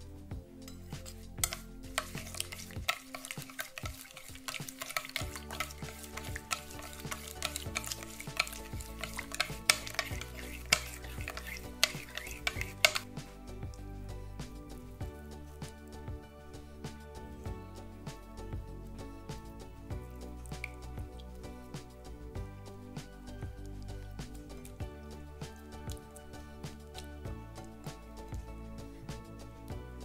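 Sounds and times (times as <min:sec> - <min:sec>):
spoon clinking against glass: 0:00.7 - 0:13.1
liquid swishing: 0:00.7 - 0:17.5, 0:19.3 - 0:29.4.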